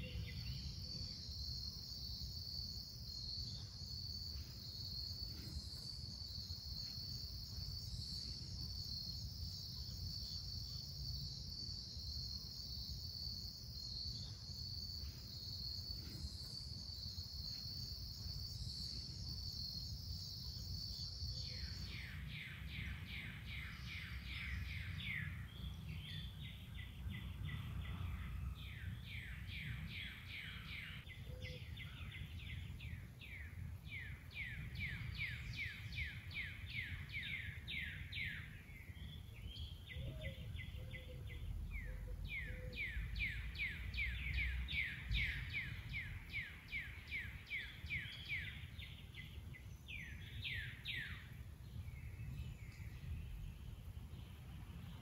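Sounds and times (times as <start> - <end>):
high insect trill: 0.0 - 22.2
bird chirping: 0.0 - 55.0.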